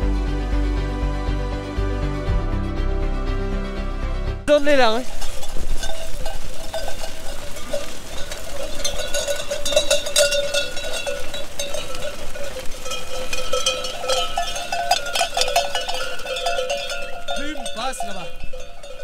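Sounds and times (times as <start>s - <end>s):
sheep bells jangling: 4.5s - 19.0s.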